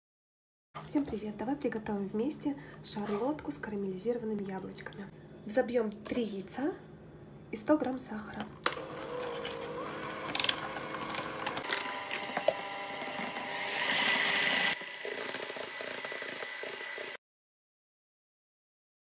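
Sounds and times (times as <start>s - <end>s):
mixer clicks: 8.6s - 17.2s
electric hand mixer whipping: 8.7s - 17.2s.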